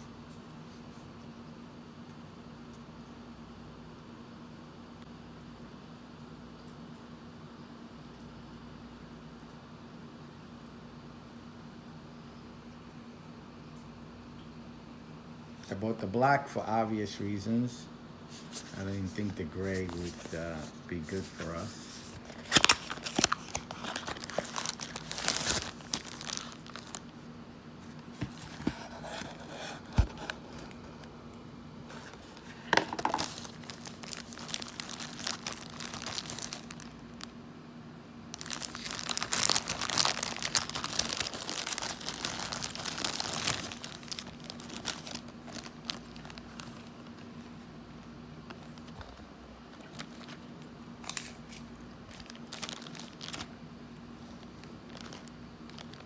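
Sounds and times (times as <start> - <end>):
plastic bags crinkling: 18.6 - 27.2, 31.9 - 37.4, 38.3 - 47.6, 48.4 - 53.6, 54.3 - 56.0.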